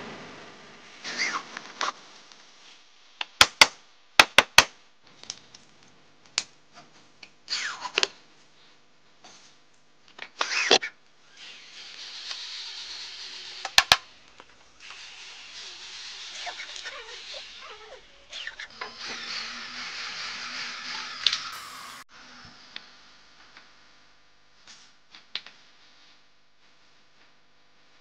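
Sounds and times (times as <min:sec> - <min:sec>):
electric drill running: 0:18.7 - 0:22.1.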